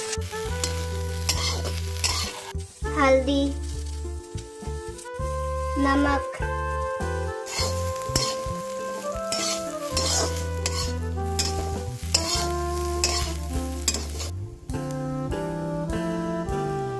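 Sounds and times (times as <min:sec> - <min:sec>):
steel spatula scraping a wok: 0:00.0 - 0:03.0, 0:04.9 - 0:14.3
vegetables sizzling in oil: 0:00.0 - 0:14.4.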